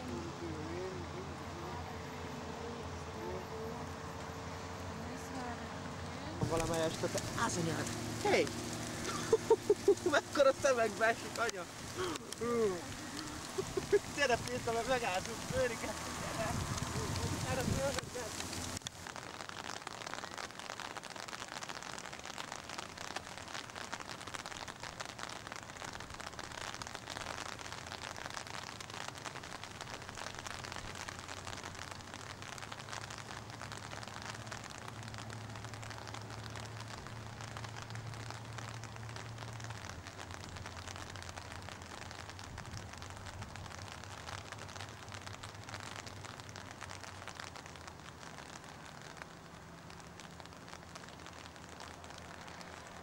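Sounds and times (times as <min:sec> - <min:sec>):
rain falling in large drops: 0:00.0 - 0:53.0.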